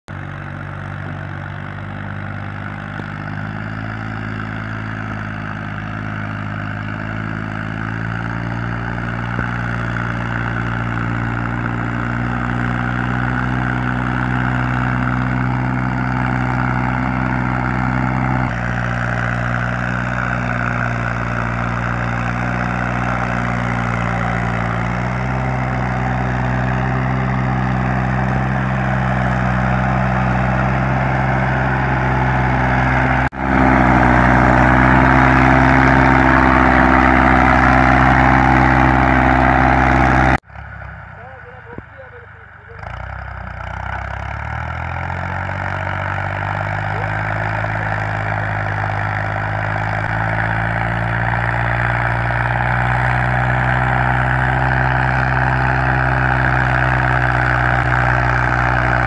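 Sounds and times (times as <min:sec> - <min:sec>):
tractor diesel engine running: 0:00.0 - 0:59.0.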